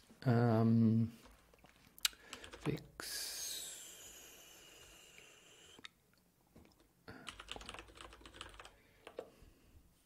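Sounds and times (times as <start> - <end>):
computer keyboard typing: 2.2 - 2.8, 7.2 - 9.2.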